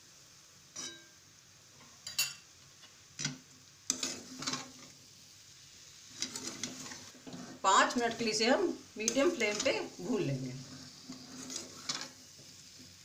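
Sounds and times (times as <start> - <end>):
metal spoon scraping metal pan: 3.9 - 4.8, 6.2 - 8.3, 9.0 - 12.2.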